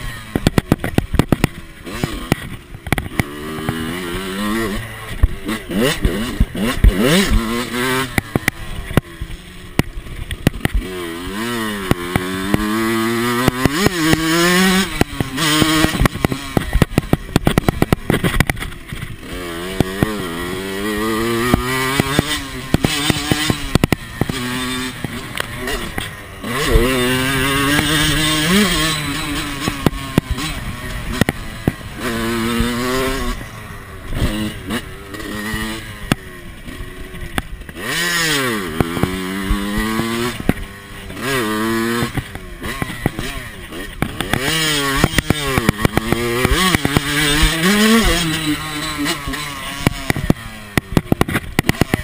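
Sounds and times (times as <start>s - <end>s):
motocross bike engine revving: 0.0s - 52.0s.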